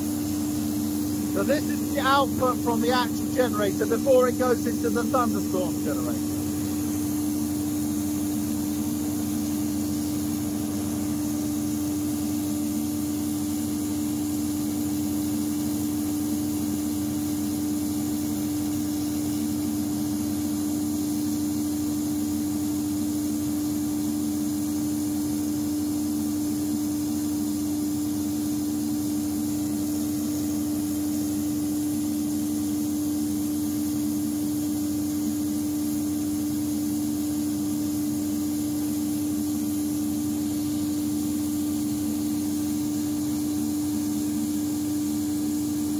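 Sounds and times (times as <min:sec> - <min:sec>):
generator droning hum: 0:00.0 - 0:11.4
hiss: 0:00.0 - 0:45.9.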